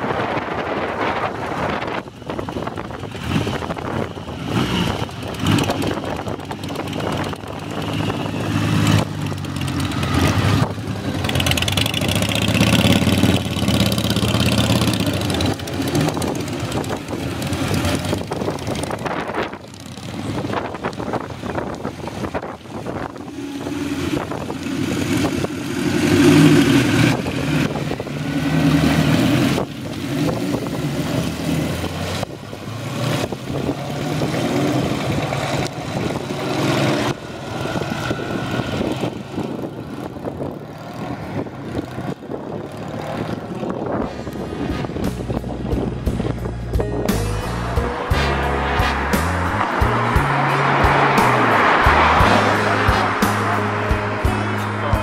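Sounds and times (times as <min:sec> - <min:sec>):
motorcycles accelerating past: 0:03.1 - 0:22.4, 0:32.8 - 0:46.3, 0:47.2 - 0:55.0.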